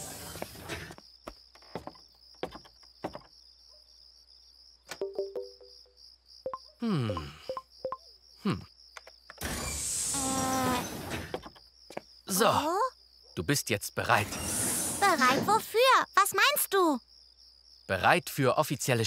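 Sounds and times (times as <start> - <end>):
crickets chirring: 0.0 - 19.0
button clicks: 5.0 - 5.7
short electronic beeps: 6.5 - 8.0.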